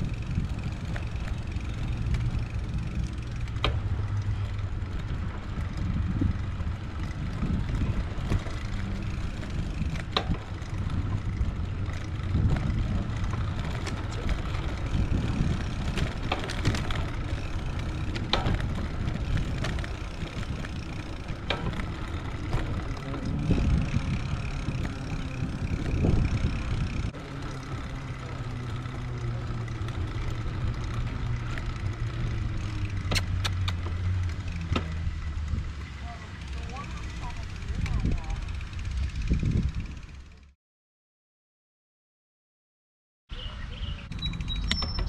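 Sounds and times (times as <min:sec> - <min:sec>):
wind rumble on microphone: 0:00.0 - 0:29.0, 0:29.6 - 0:35.9, 0:36.9 - 0:40.5
bicycle tyre noise: 0:00.0 - 0:40.5
bike clicks and rattles: 0:00.0 - 0:40.5, 0:44.0 - 0:45.0.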